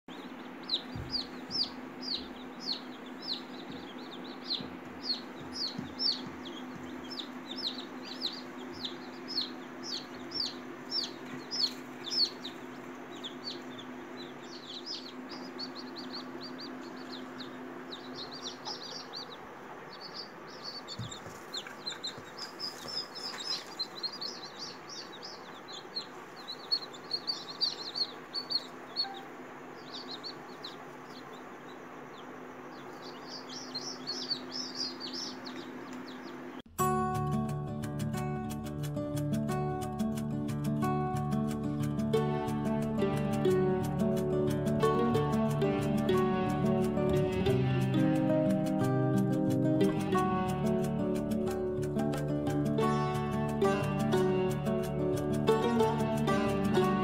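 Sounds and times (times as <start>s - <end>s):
chicks peeping: 0.1s - 36.7s, 39.2s - 57.0s
steady low hum: 0.1s - 36.9s.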